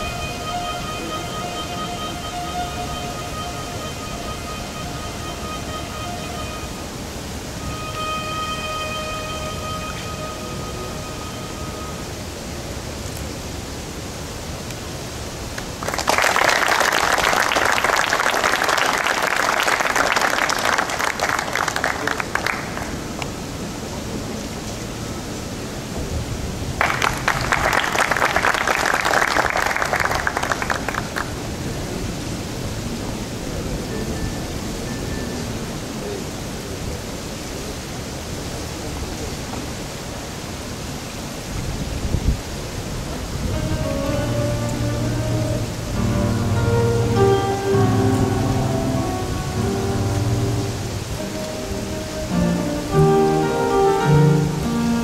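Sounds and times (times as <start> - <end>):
audience applauding: 15.5 - 23.6, 26.8 - 32.0
wind buffeting microphone: 40.6 - 46.2.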